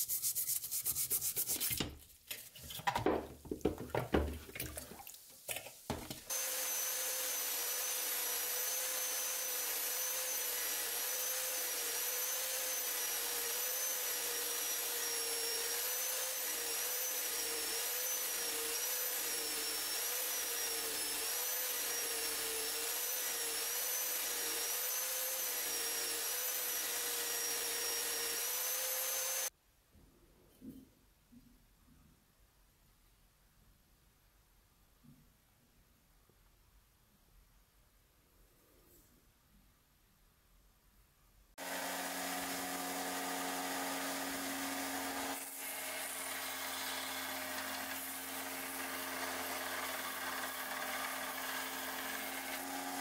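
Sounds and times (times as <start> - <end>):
brush scrubbing wet knife blade: 0.0 - 2.6
knocks and handling: 1.4 - 6.3.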